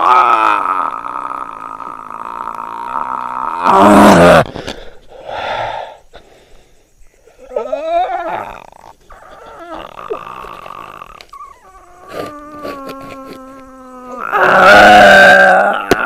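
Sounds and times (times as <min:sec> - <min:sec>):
man grunting and groaning: 0:00.0 - 0:04.5, 0:12.0 - 0:16.0.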